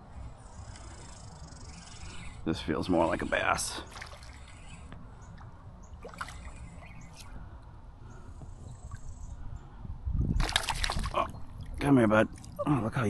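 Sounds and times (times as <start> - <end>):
faint water splashing: 2.9 - 7.5, 10.4 - 13.0.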